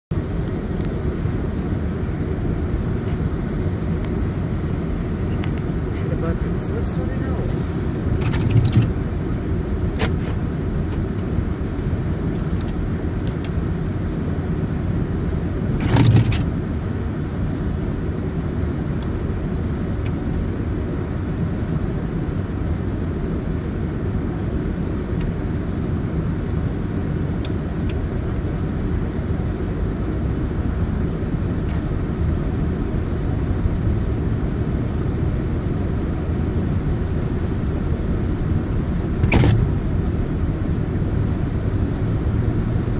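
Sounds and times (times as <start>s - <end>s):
car engine rumble: 0.1s - 42.9s
light ticks: 25.0s - 32.0s.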